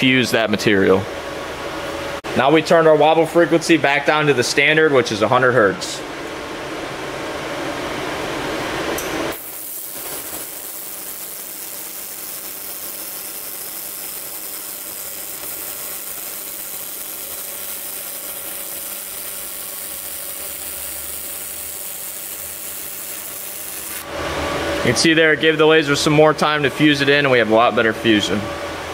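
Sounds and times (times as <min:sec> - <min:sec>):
laser welder crackling hiss: 0:09.3 - 0:24.1.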